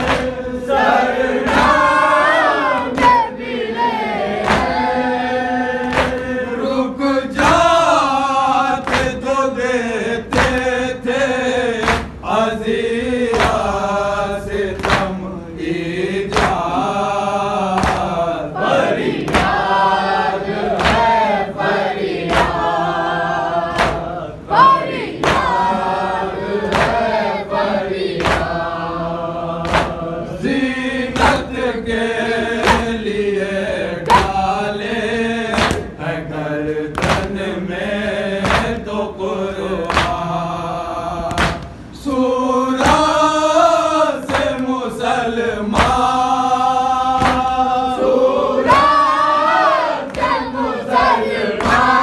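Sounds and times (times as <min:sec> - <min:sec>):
men chanting in unison: 0:00.0 - 0:52.0
hands beating on chests: 0:14.8 - 0:15.2, 0:17.7 - 0:18.2, 0:23.7 - 0:25.8, 0:26.6 - 0:27.1, 0:28.2 - 0:28.5, 0:29.6 - 0:30.0, 0:36.9 - 0:37.4, 0:38.4 - 0:38.8, 0:39.8 - 0:40.2, 0:41.3 - 0:41.8, 0:45.8 - 0:46.1, 0:47.1 - 0:47.6.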